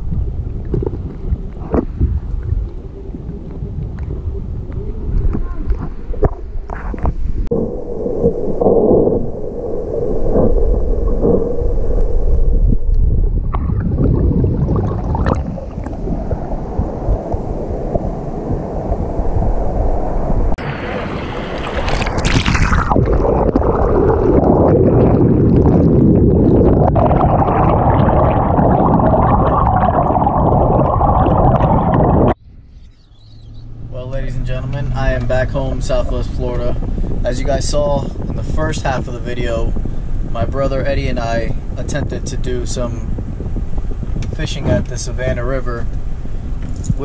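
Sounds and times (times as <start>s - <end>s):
muffled underwater water rush: 0.0s - 32.4s
water splashing: 0.0s - 32.4s.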